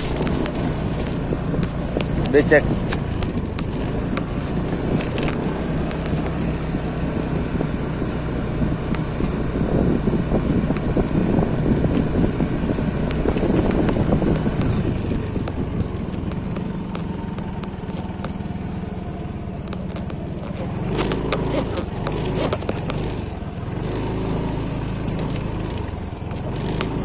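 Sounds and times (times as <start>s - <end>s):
knocks and rattles from bumps: 0.0s - 6.6s, 11.8s - 18.8s, 19.6s - 23.4s
scooter engine running: 0.0s - 27.0s.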